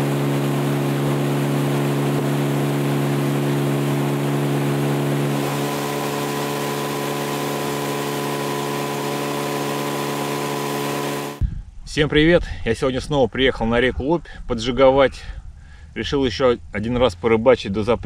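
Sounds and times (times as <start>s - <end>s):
outboard motor running: 0.0s - 11.4s.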